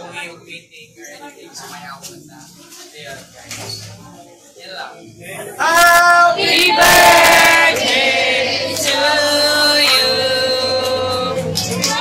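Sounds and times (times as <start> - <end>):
voices singing long held notes: 5.6 - 11.6.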